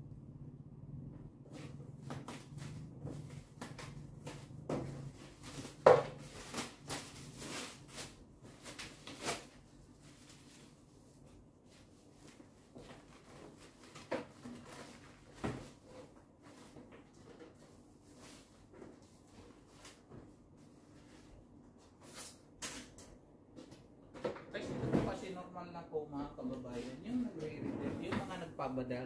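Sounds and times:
faint low hum: 0.0s - 22.1s.

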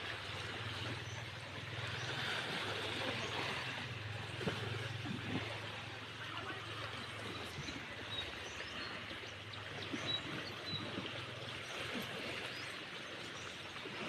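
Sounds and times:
small waves lapping on a wall: 0.0s - 14.0s.

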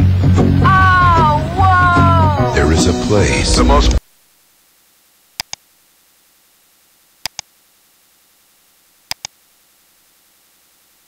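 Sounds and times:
faint hiss: 0.0s - 11.0s
computer mouse clicking: 5.4s - 5.6s, 7.2s - 7.5s, 9.1s - 9.4s.

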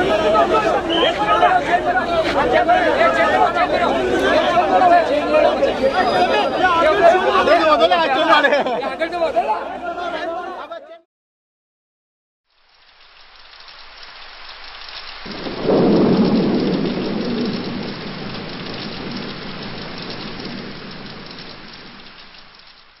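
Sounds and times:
thunder rolling: 0.0s - 7.4s, 15.1s - 22.9s
rain hiss: 12.5s - 23.0s.

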